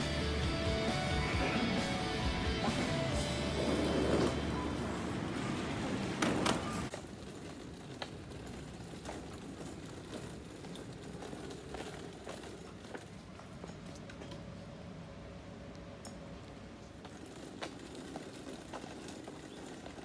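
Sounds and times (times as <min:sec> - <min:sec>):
crowd hubbub: 0:00.0 - 0:06.9.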